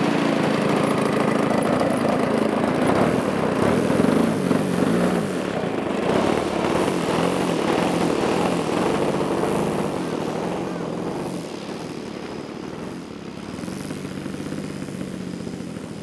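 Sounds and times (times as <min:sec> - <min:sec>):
model plane engine revving: 0:00.0 - 0:16.0.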